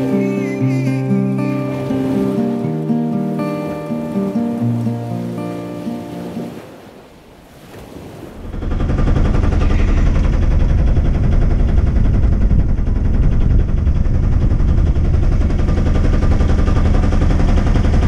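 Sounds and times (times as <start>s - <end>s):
boat motor chugging: 0.0s - 3.9s, 8.4s - 18.0s.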